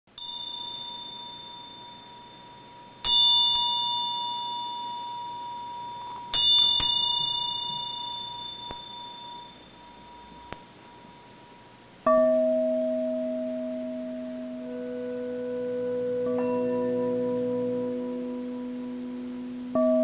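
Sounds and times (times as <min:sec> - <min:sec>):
bell-like chime strikes: 0:00.1 - 0:11.4.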